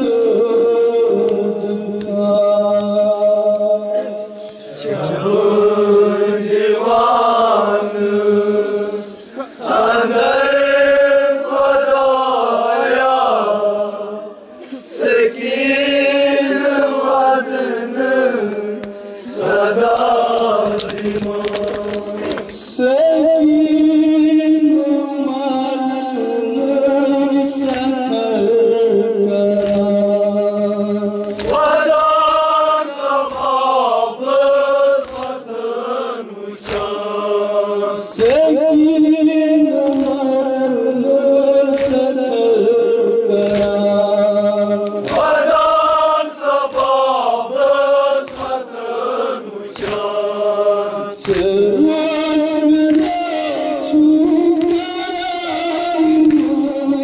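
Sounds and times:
men chanting a lament: 0.0 - 57.0
chest-beating slaps: 36.6 - 37.0, 43.4 - 43.9, 44.8 - 45.6, 48.2 - 48.8, 49.7 - 50.2, 51.2 - 51.7.

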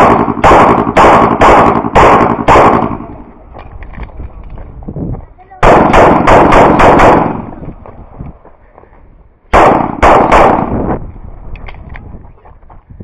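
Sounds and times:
pistol shots: 0.0 - 3.3, 5.6 - 7.6, 9.5 - 11.0.

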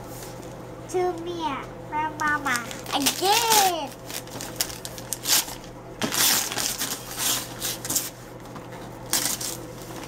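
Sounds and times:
paper crinkling: 2.5 - 8.2, 9.1 - 10.0
wrapping paper tearing: 2.5 - 8.2, 9.1 - 10.0.

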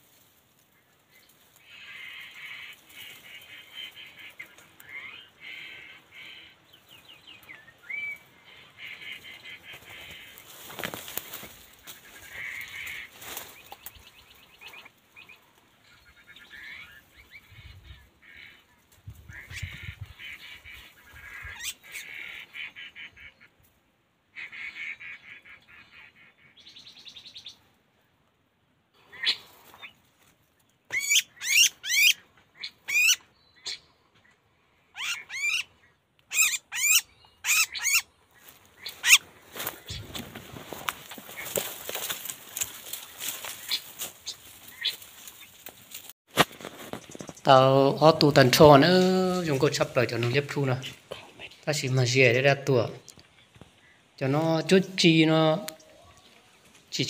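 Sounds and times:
chatter of high bird calls: 1.5 - 23.5, 30.9 - 45.7
rustling in brush: 9.6 - 13.9, 38.4 - 47.5.

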